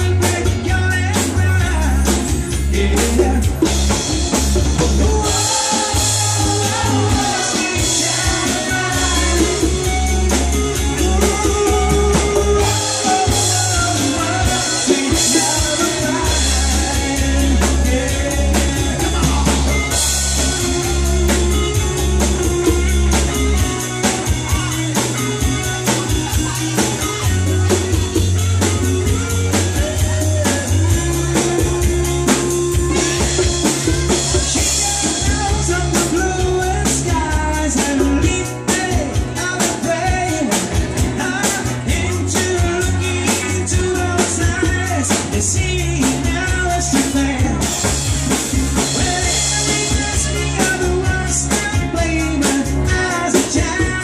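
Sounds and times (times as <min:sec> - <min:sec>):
live band playing dance music: 0:00.0 - 0:54.0
person singing: 0:00.0 - 0:54.0.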